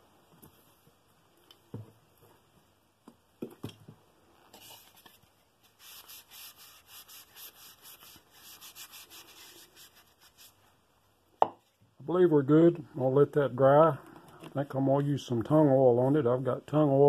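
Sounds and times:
hand rubbing wooden bowl: 0:05.8 - 0:10.6.

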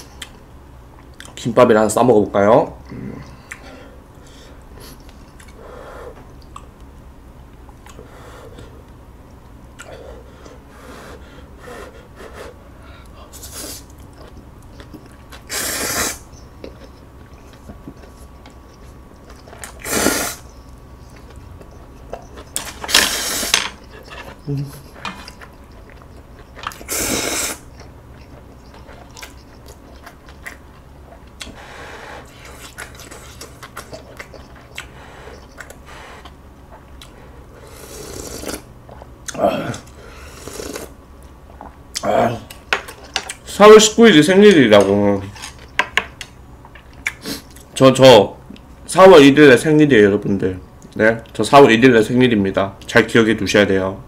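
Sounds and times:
chewing and mouth sounds: 0:04.9 - 0:05.6, 0:06.2 - 0:06.9, 0:13.3 - 0:15.5, 0:16.3 - 0:31.6, 0:32.2 - 0:43.5, 0:45.3 - 0:47.8
person slurping noodles: 0:15.5 - 0:16.2, 0:19.7 - 0:20.4, 0:22.9 - 0:23.6, 0:26.7 - 0:27.7, 0:37.6 - 0:38.7, 0:40.2 - 0:40.9.

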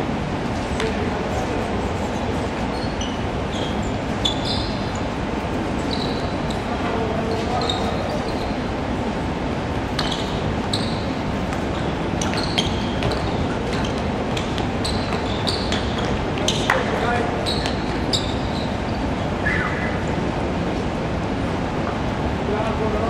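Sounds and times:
din of sports hall: 0:00.0 - 0:23.0
shoes squeaking on hardwood court: 0:02.6 - 0:05.1, 0:05.8 - 0:08.7, 0:09.9 - 0:19.3.

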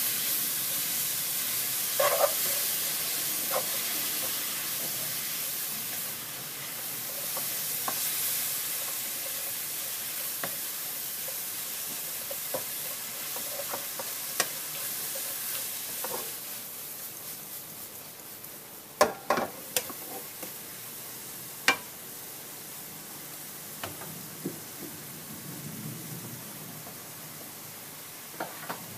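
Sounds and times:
greens sizzling in a wok: 0:00.0 - 0:25.4, 0:26.4 - 0:28.9
wooden spatula scraping: 0:02.0 - 0:02.7, 0:11.9 - 0:16.6.

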